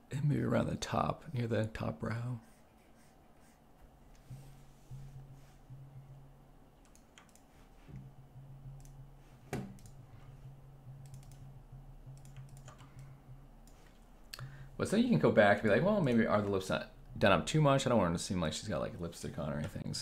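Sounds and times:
low steady hum: 0.0s - 20.0s
keyboard and mouse clicks: 6.8s - 10.0s, 10.9s - 14.5s.

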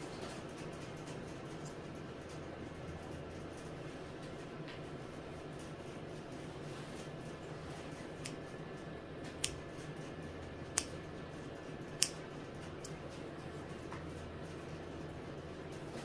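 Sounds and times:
scissors snipping fur: 0.5s - 2.5s, 7.8s - 14.8s.

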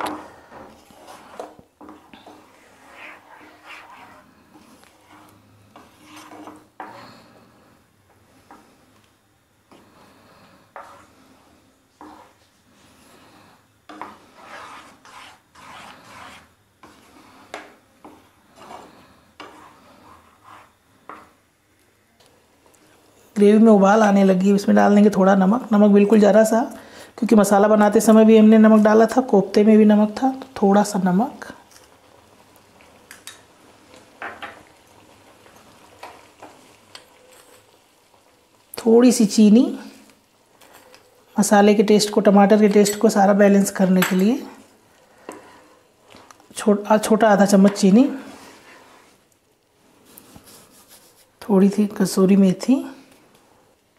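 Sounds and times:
wooden spatula scraping a pan: 0.0s - 7.5s, 8.1s - 8.9s, 9.7s - 21.4s, 33.9s - 38.3s, 42.0s - 46.2s, 47.0s - 49.2s
gravy simmering in a pan: 30.4s - 42.6s, 44.5s - 46.6s, 47.4s - 50.7s.

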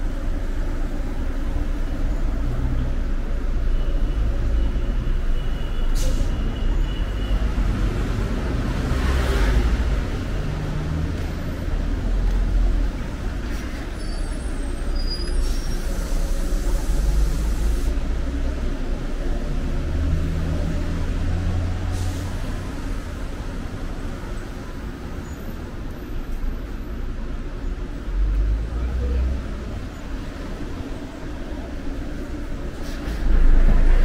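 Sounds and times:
traffic rumble: 0.0s - 34.0s
vehicle hissing past: 13.4s - 18.2s, 21.3s - 23.0s, 32.6s - 34.0s.

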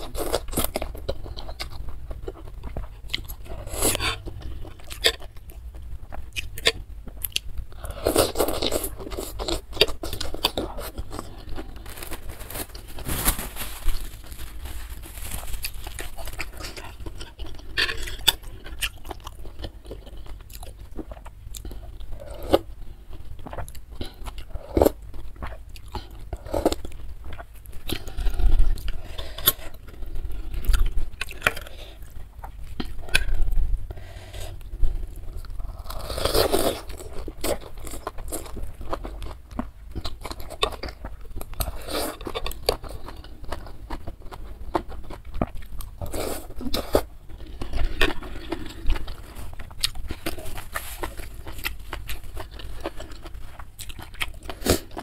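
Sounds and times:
close chewing with wet crunches: 36.7s - 55.0s.

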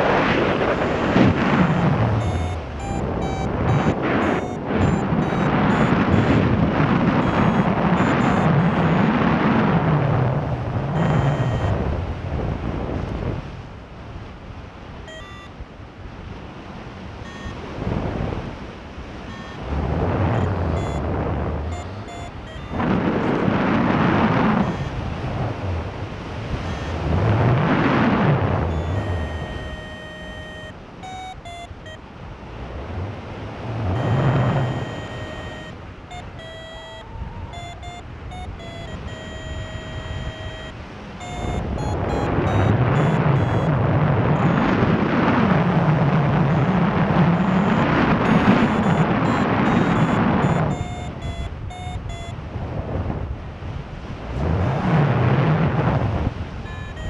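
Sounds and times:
short electronic beeps: 0.0s - 9.4s, 10.9s - 11.9s, 15.1s - 15.6s, 17.2s - 17.8s, 19.2s - 25.2s, 26.6s - 32.1s, 33.9s - 45.0s, 45.6s - 52.4s, 56.6s - 57.0s
wind rushing over microphone: 0.0s - 57.0s.

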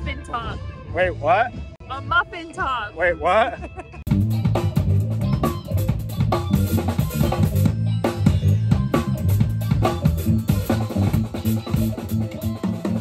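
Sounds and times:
drum kit beat: 3.4s - 13.0s
sustained bass notes: 4.1s - 13.0s.

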